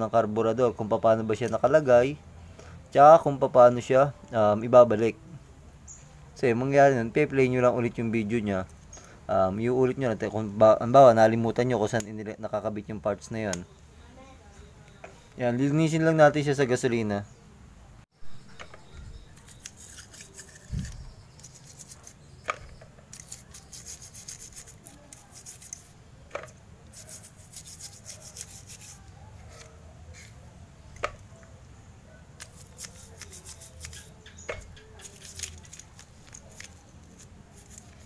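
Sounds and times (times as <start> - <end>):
scratchy scrubbing strokes: 19.4 - 22.2, 23.1 - 26.0, 26.9 - 30.4, 32.4 - 34.3, 35.0 - 38.0
small metal parts clicking: 19.4 - 30.4, 32.4 - 38.0.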